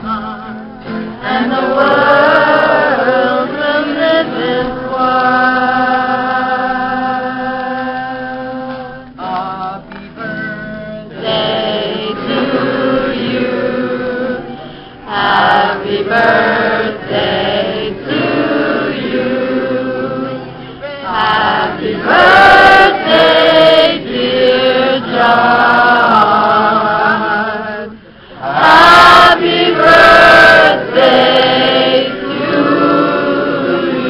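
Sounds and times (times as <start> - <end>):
strummed acoustic guitar: 0.0 - 2.0, 8.6 - 15.4
group singing in chorus: 1.1 - 9.9, 11.1 - 34.0.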